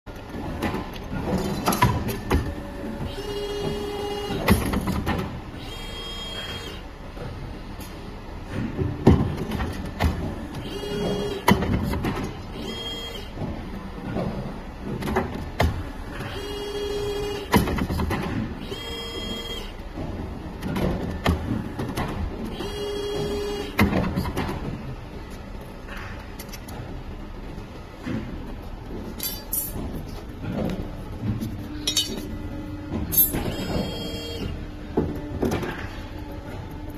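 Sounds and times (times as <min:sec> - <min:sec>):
drive motors whining: 0:05.5 - 0:07.3, 0:10.3 - 0:14.1, 0:30.0 - 0:36.9
metal coat hangers clinking: 0:31.8 - 0:32.2.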